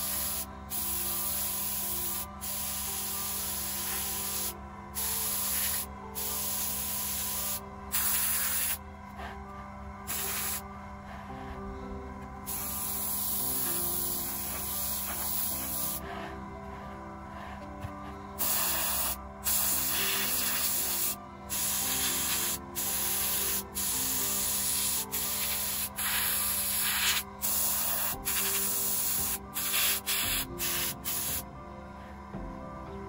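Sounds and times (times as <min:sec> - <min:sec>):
airbrush spraying hiss: 0:00.0 - 0:08.8, 0:10.1 - 0:10.6, 0:12.5 - 0:16.0, 0:18.4 - 0:31.5.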